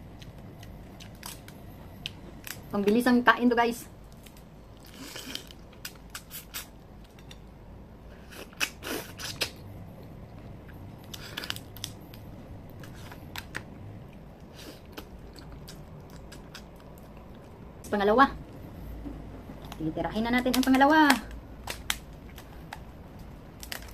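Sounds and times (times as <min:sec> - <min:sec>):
crab shells cracking by hand: 0:00.2 - 0:03.0, 0:20.5 - 0:23.9.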